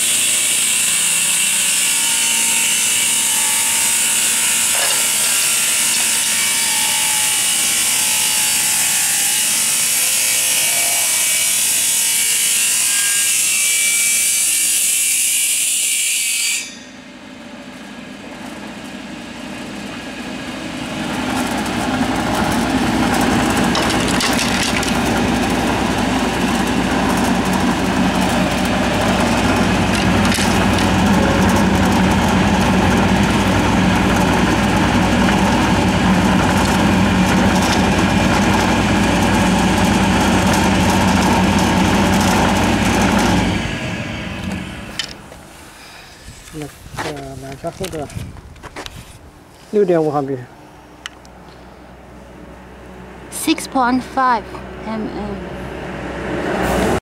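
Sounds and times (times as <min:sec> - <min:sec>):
machine slicing wood plank: 0:00.0 - 0:16.8, 0:19.9 - 0:45.4
low machine hum: 0:17.0 - 0:46.4.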